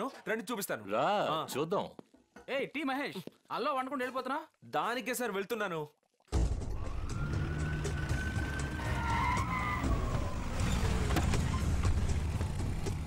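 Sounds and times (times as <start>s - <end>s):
siren wailing: 6.7s - 11.0s
engines running with low rumble: 9.8s - 13.0s.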